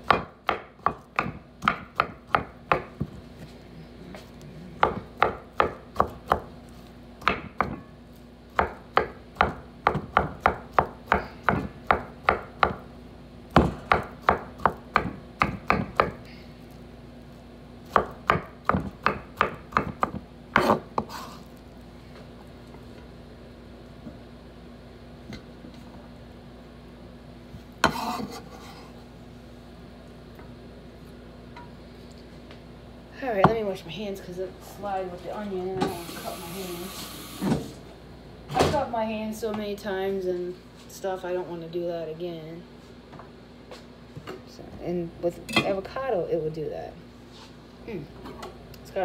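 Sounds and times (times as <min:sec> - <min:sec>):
knife chopping on wooden board: 0:00.0 - 0:03.2, 0:04.8 - 0:06.5, 0:07.2 - 0:07.9, 0:08.6 - 0:12.8, 0:13.6 - 0:16.2, 0:17.9 - 0:21.2.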